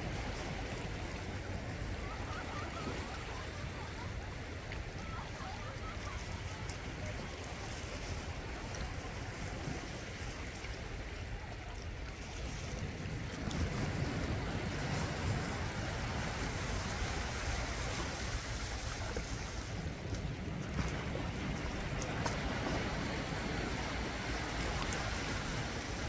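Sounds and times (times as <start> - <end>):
sea waves breaking on rocks: 0.0 - 26.0.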